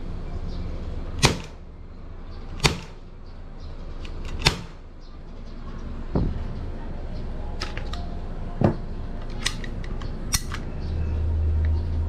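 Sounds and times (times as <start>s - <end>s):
airsoft pistol shots: 1.2s - 1.6s, 2.6s - 3.0s, 4.4s - 4.8s.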